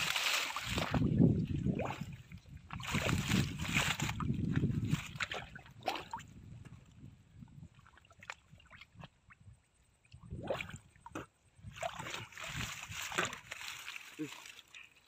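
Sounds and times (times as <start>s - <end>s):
water dripping and gurgling: 0.0s - 15.0s
water sloshing and splashing: 0.0s - 15.0s.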